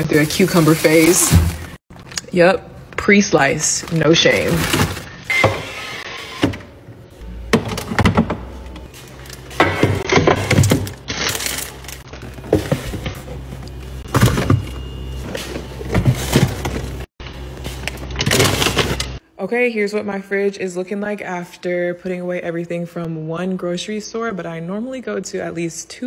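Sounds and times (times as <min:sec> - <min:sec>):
packaging crinkling: 0:10.8 - 0:12.4.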